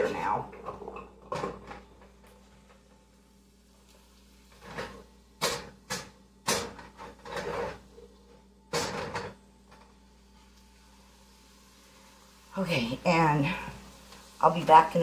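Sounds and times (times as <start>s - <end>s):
pot scraping: 4.5s - 5.7s, 6.8s - 8.2s.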